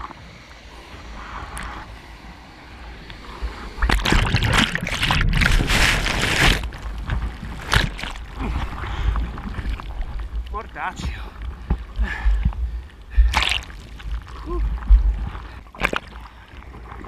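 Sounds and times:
water splashes: 0:02.9 - 0:17.0
water sloshing: 0:03.8 - 0:17.0.

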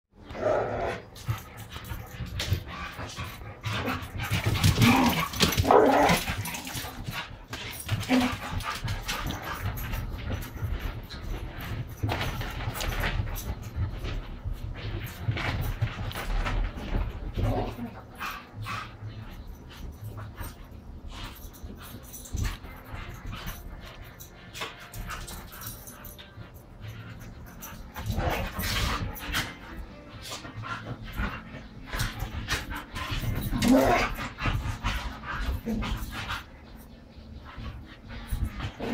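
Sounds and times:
dogs yipping and barking: 0:00.3 - 0:13.8, 0:17.4 - 0:38.9
claws clattering on tile floor: 0:00.4 - 0:18.8, 0:19.7 - 0:36.4
dog claws clicking on tile: 0:01.1 - 0:14.2.

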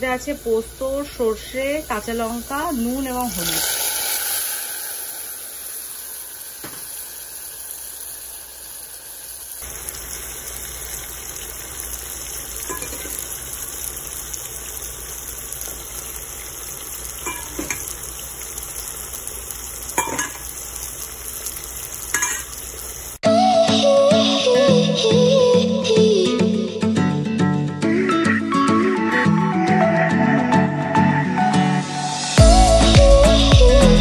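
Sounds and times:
food sizzling in oil: 0:00.0 - 0:23.2.

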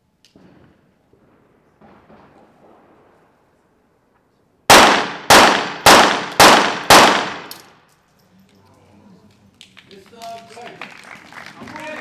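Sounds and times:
pistol shots indoors: 0:04.7 - 0:07.6.

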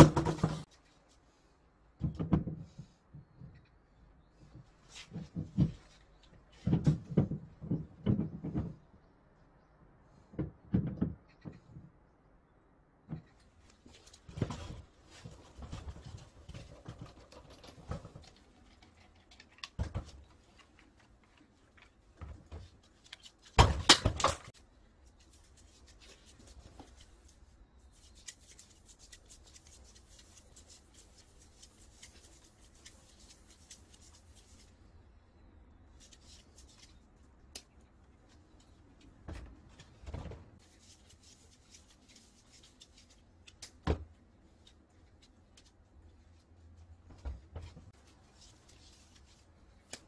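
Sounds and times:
metal parts clattering: 0:23.9 - 0:24.5.

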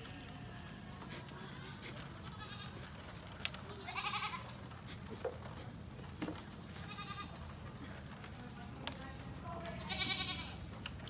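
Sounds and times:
sheep bleating: 0:01.4 - 0:02.8, 0:03.8 - 0:04.5, 0:06.8 - 0:07.4, 0:09.8 - 0:10.6.

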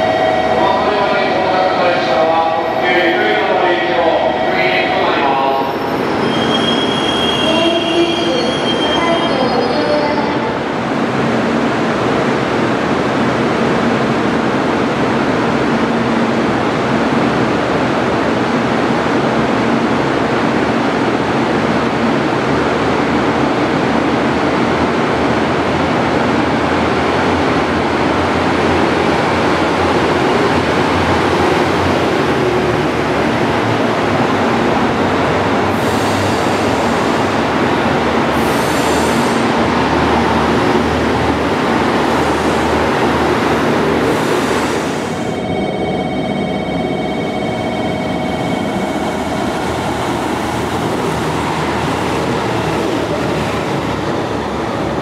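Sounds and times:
train engine rumbling: 0:00.0 - 0:55.0
train wheels on rails: 0:10.6 - 0:45.5, 0:46.4 - 0:55.0.

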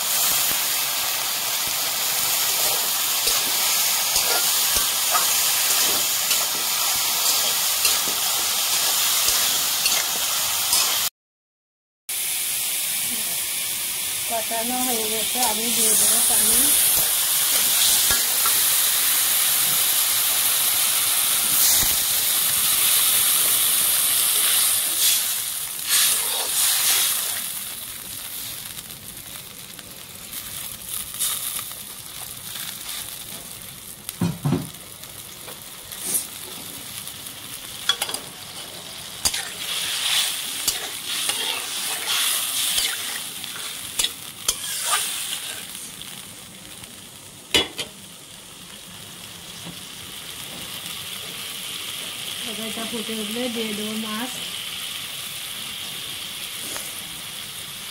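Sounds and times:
curry simmering hiss: 0:00.0 - 0:11.1, 0:12.1 - 0:57.9
loud sizzling hiss: 0:00.0 - 0:11.1, 0:12.1 - 0:57.9
metal spatula scraping pan: 0:39.3 - 0:45.1.

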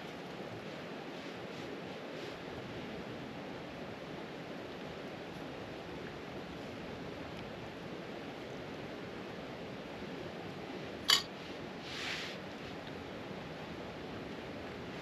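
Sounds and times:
soft rustle: 0:00.0 - 0:03.0, 0:11.3 - 0:13.0.

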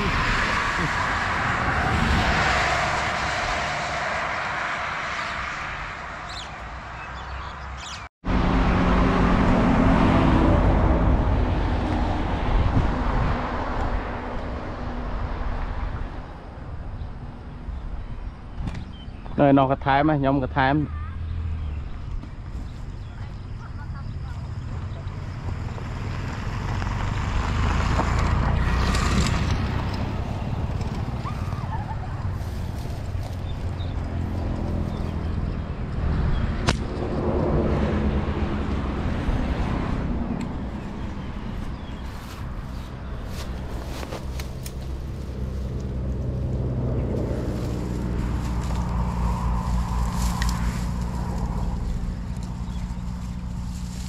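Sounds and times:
motor engine droning: 0:08.2 - 0:15.8, 0:24.5 - 0:54.0
wind buffeting microphone: 0:10.8 - 0:19.1.

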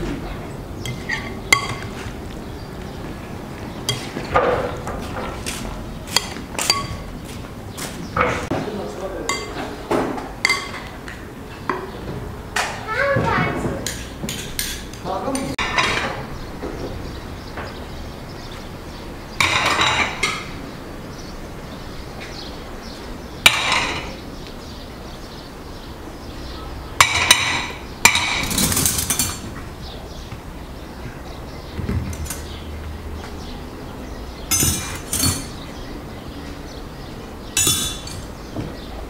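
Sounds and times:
cutlery and plates clinking: 0:00.8 - 0:02.1, 0:03.9 - 0:07.1, 0:09.2 - 0:11.0, 0:13.8 - 0:16.3, 0:19.4 - 0:20.6, 0:23.4 - 0:24.2, 0:27.0 - 0:29.6, 0:32.1 - 0:32.6, 0:34.5 - 0:35.7, 0:37.6 - 0:38.4.

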